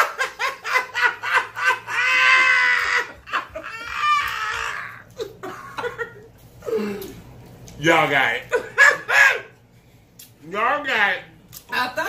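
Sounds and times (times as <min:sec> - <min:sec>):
people laughing hard: 0:00.0 - 0:06.3, 0:08.5 - 0:09.6.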